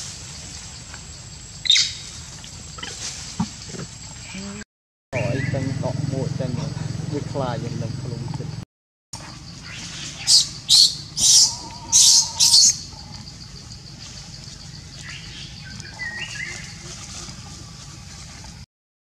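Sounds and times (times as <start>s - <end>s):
monkey screaming: 10.2s - 13.2s.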